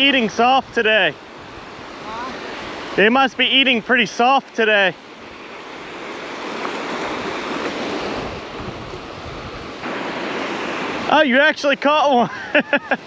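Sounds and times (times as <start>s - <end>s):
ocean surf breaking: 0.0s - 13.0s
wind rumbling on microphone: 0.6s - 3.0s, 5.2s - 11.1s.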